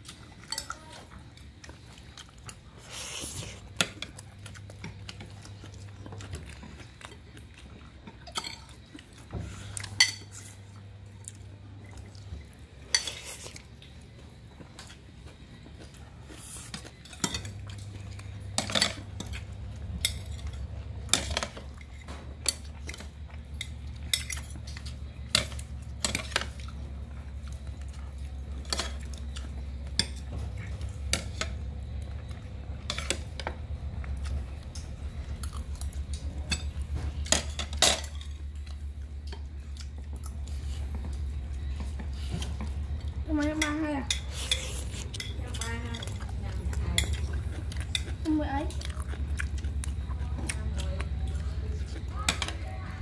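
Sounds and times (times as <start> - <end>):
spoons clinking on plates: 0.4 - 0.9, 8.3 - 8.8, 9.9 - 10.5, 16.7 - 26.7, 36.2 - 38.5, 43.3 - 48.1
low hum: 13.6 - 53.0.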